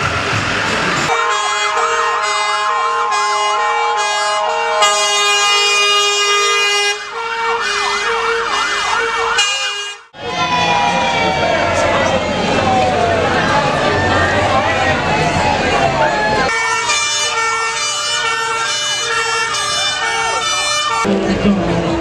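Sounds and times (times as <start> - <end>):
siren whooping wail: 1.1 - 9.5, 10.2 - 21.1
fire engine siren hi-lo: 1.1 - 21.9.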